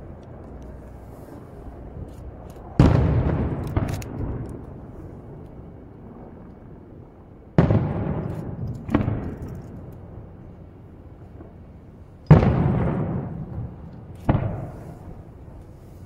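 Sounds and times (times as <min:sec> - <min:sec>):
firework booms with echo: 0:02.8 - 0:04.4, 0:07.6 - 0:09.2, 0:12.3 - 0:15.3.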